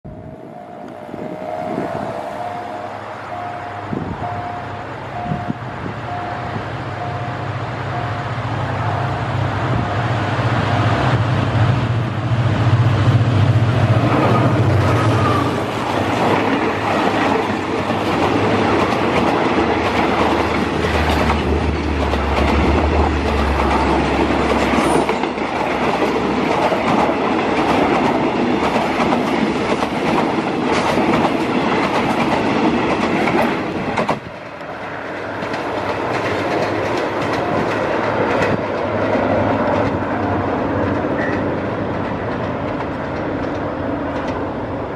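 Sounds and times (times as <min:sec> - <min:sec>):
level crossing signal beeping: 0:00.1 - 0:10.9
locomotive engine droning: 0:00.1 - 0:26.0
train wheels clacking on rails: 0:12.5 - 0:44.6.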